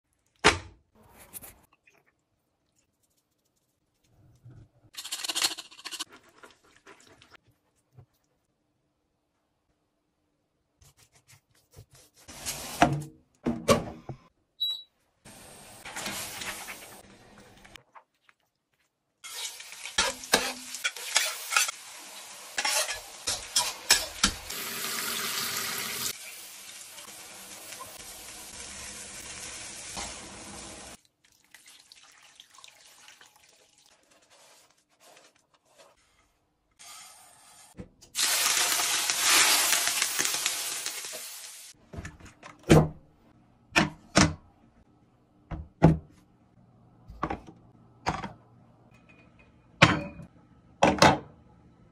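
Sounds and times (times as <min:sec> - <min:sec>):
food frying and sizzling: 0:15.3 - 0:17.9, 0:19.2 - 0:35.2, 0:36.8 - 0:41.8
metal utensils clinking: 0:19.3 - 0:21.8.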